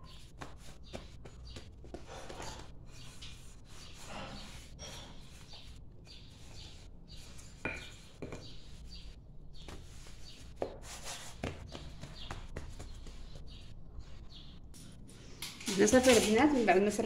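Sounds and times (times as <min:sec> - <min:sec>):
dough worked with rolling pin: 0:00.0 - 0:14.2.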